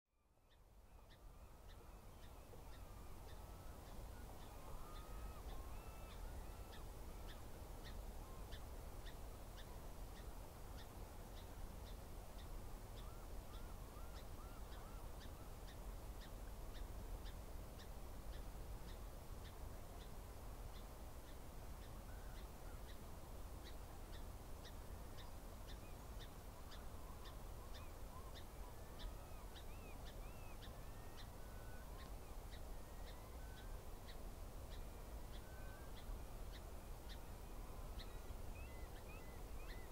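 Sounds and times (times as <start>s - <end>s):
distant bird calls: 25.2s - 39.9s.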